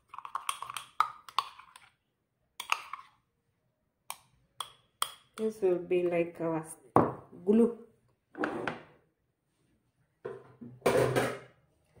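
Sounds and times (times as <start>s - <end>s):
teaspoon stirring paste in cup: 0.0s - 3.4s, 4.0s - 5.8s.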